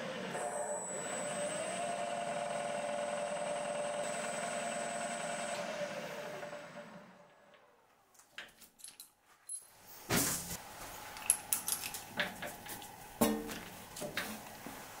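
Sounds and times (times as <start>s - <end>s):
milling machine spindle whining: 0.0s - 7.3s.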